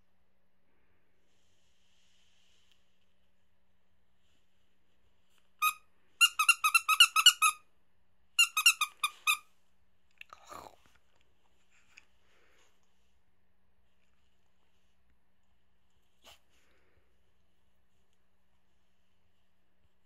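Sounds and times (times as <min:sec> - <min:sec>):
faint soft rustle: 0:00.8 - 0:05.6, 0:10.7 - 0:20.0
toy squeaker squeaks: 0:05.6 - 0:07.6, 0:08.4 - 0:09.4.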